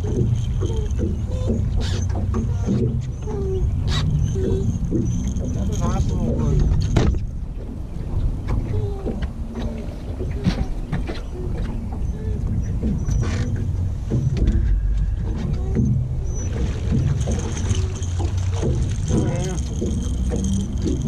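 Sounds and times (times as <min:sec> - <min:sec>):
fishing gear knocks and clicks: 0:00.0 - 0:03.1, 0:04.0 - 0:07.7, 0:16.5 - 0:21.0
wind and water rumble: 0:00.0 - 0:21.0.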